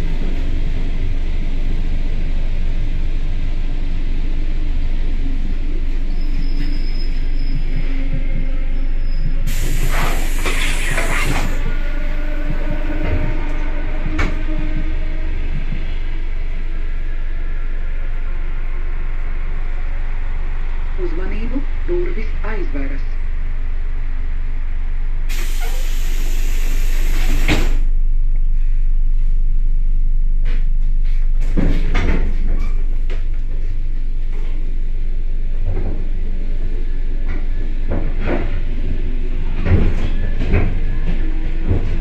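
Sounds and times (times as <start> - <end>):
train low hum: 0.0 - 42.0
compressed air hissing: 9.5 - 11.7, 25.3 - 27.8.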